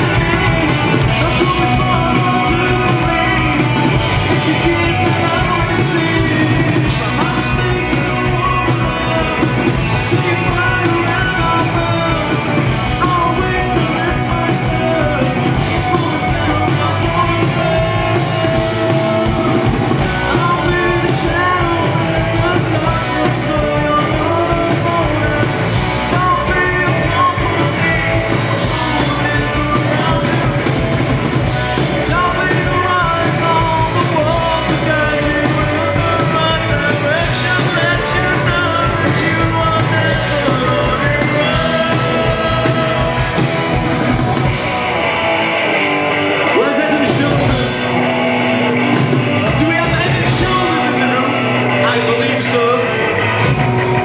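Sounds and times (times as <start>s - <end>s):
man singing: 0.0s - 31.0s, 31.6s - 44.4s, 46.5s - 48.2s, 49.4s - 53.4s
rock band playing: 0.0s - 54.0s.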